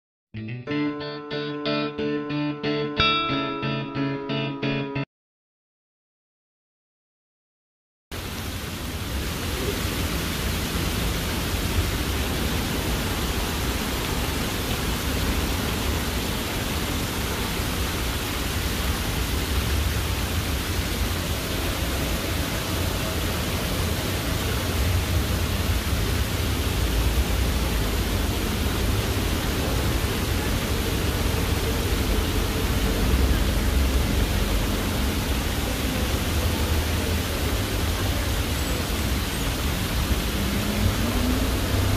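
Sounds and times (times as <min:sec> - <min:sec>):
water splashing down stone wall: 0:08.2 - 0:41.9.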